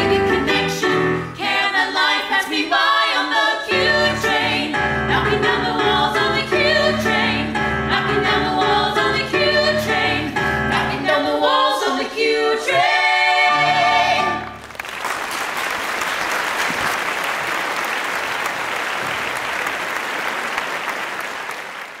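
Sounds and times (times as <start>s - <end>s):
voices singing: 0.0s - 14.5s
keyboard accompaniment: 3.8s - 14.8s
audience applause: 14.6s - 22.0s.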